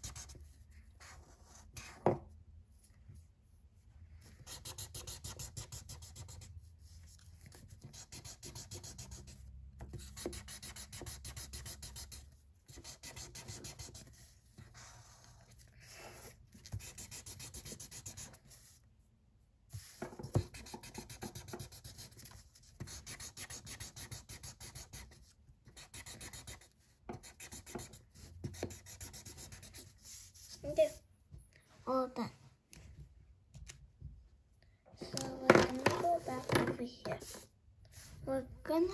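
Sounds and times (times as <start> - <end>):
marker scribbling on paper: 0.0 - 2.1, 4.2 - 18.8, 19.7 - 31.0, 35.2 - 38.9.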